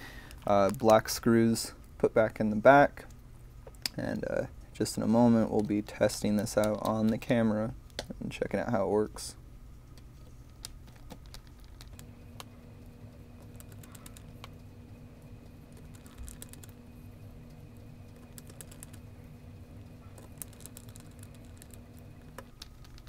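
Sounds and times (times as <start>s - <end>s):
faint steady hum: 0.0s - 23.0s.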